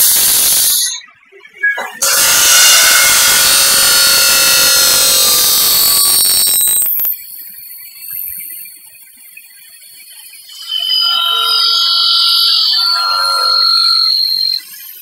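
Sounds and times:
circular saw cutting metal: 0:00.0 - 0:01.0, 0:01.8 - 0:07.2, 0:10.5 - 0:15.0
steady high whine: 0:00.0 - 0:07.6, 0:10.3 - 0:15.0.

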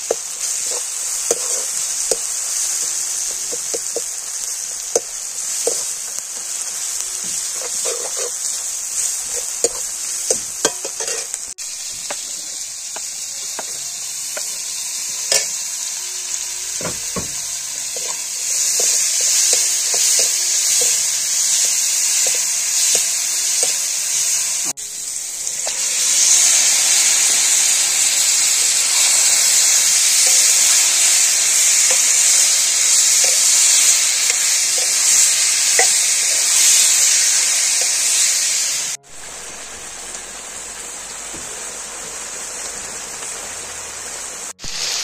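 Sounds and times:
onions sizzling in hot oil: 0:00.0 - 0:45.0
metal ladle scraping a pan: 0:00.4 - 0:02.2, 0:07.2 - 0:12.6, 0:16.7 - 0:21.2.

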